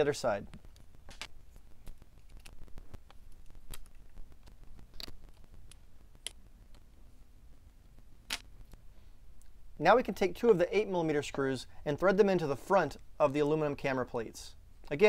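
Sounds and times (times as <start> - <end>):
small parts clicking and tapping: 0.5 - 7.0.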